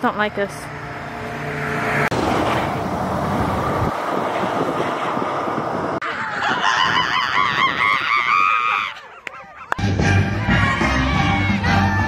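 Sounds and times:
steady rushing noise outdoors: 0.0 - 12.0.

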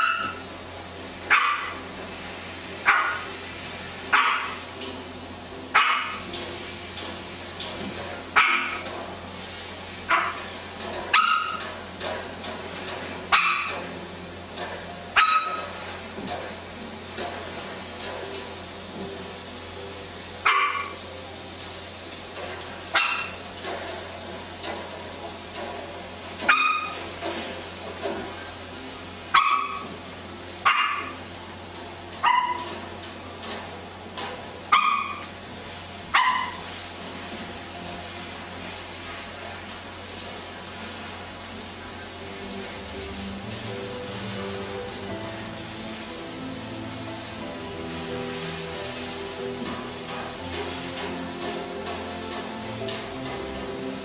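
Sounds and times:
small dog barking: 0.0 - 0.4, 1.3 - 1.8, 2.9 - 3.3, 4.1 - 4.6, 5.8 - 6.2, 8.4 - 8.8, 10.1 - 10.4, 11.1 - 11.6, 13.3 - 13.8, 15.2 - 15.7, 20.4 - 20.9, 23.0 - 23.3, 29.3 - 29.9, 30.6 - 31.1, 32.2 - 32.7, 34.7 - 35.2, 36.1 - 36.6.

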